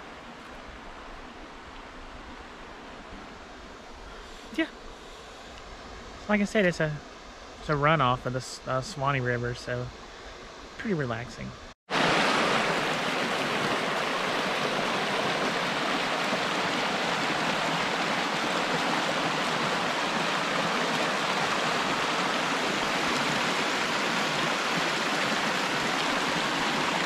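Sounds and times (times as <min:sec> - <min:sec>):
creek water rushing over rocks: 0:11.9 - 0:27.0.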